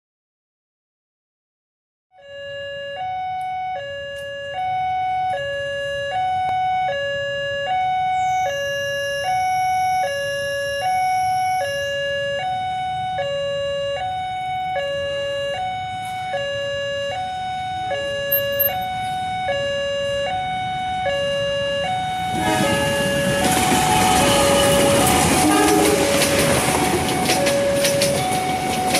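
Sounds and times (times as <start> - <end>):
two-tone crossing alarm: 2.2 - 28.9
passing train rumble: 7.9 - 28.9.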